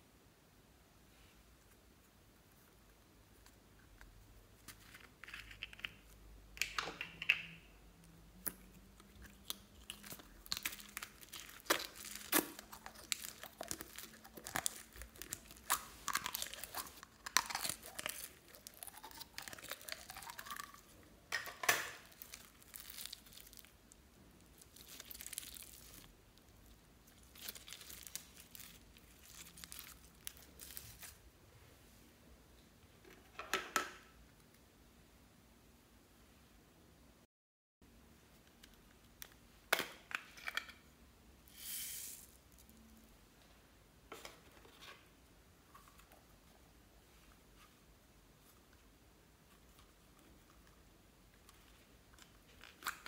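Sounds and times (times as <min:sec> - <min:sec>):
foam bead slime crackling: 0:08.4 - 0:21.0, 0:21.9 - 0:31.2.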